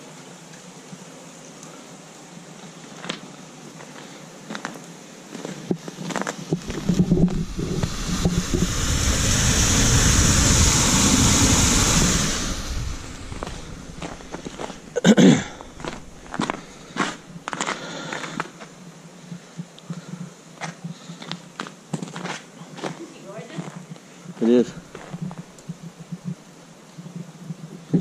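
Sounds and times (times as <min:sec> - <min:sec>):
faint hiss: 0:00.0 - 0:28.0
microphone handling noise: 0:05.7 - 0:17.6, 0:24.7 - 0:26.4, 0:27.1 - 0:28.0.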